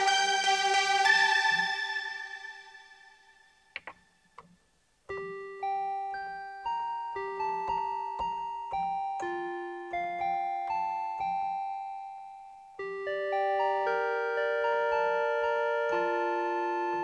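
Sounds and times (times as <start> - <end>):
keyboard chord: 0.0 - 3.9, 5.1 - 17.0
keyboard melody: 0.0 - 17.0
button clicks: 3.8 - 4.6.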